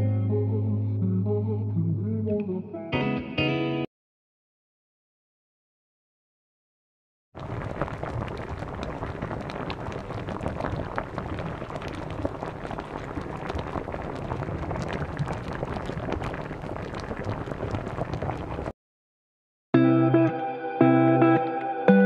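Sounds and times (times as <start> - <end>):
water boiling in wok: 7.4 - 18.7.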